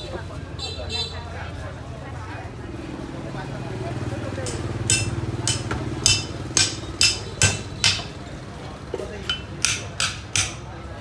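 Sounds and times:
cleaver chopping into wooden block: 0:04.4 - 0:08.1, 0:09.3 - 0:10.6.

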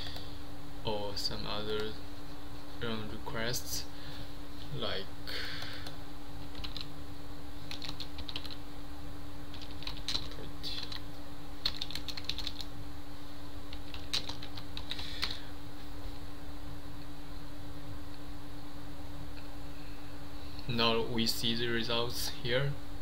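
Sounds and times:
keyboard typing: 0:05.6 - 0:06.9, 0:07.7 - 0:08.6, 0:09.5 - 0:11.0, 0:11.6 - 0:12.7, 0:13.7 - 0:15.4.

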